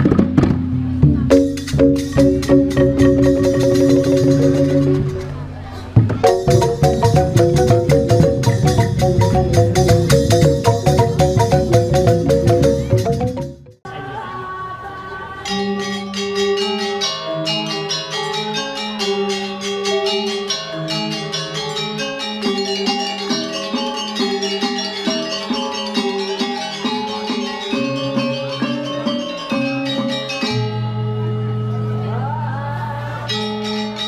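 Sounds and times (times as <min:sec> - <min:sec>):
drums: 0:00.0 - 0:13.8
gamelan metallophones playing: 0:01.0 - 0:13.8, 0:15.5 - 0:32.2, 0:33.2 - 0:34.0
low gong ringing: 0:01.3 - 0:05.5.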